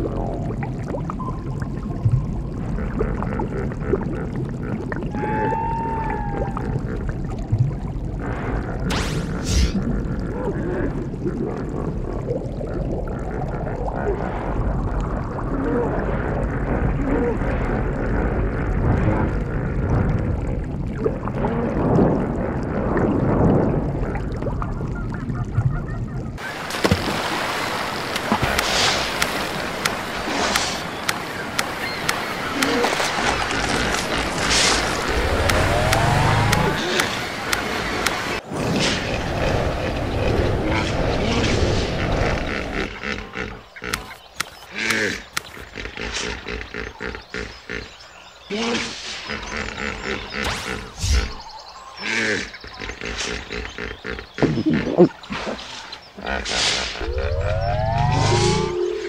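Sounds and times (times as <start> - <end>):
underwater bubbling rumble: 0.0 - 26.4, 27.7 - 44.3, 54.0 - 55.2, 57.0 - 59.0
sharp clicks: 28.1 - 33.0, 33.8 - 38.4, 43.9 - 45.7
drawn-out gliding tone: 34.6 - 38.3, 57.0 - 59.0.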